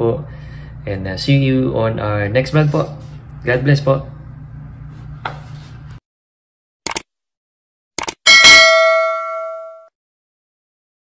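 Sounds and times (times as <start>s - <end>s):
notification bell ding: 8.3s - 9.9s.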